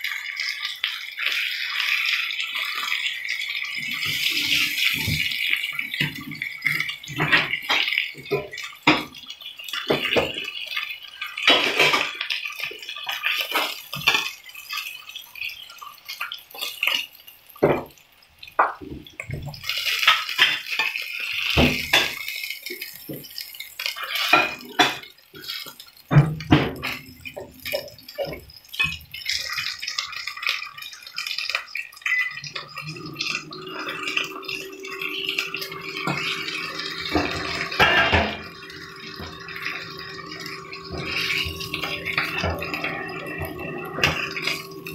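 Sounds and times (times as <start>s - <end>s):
steak sizzling in a frying pan: 0.0s - 44.9s
low steady hum: 32.8s - 44.9s.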